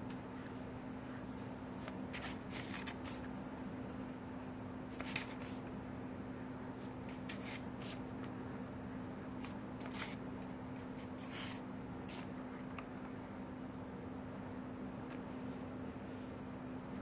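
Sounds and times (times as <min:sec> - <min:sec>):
steady low hum: 0:00.0 - 0:17.0
paintbrush swishing on paper: 0:00.3 - 0:03.2, 0:04.9 - 0:05.6, 0:06.8 - 0:08.1, 0:09.2 - 0:10.2, 0:10.9 - 0:12.4.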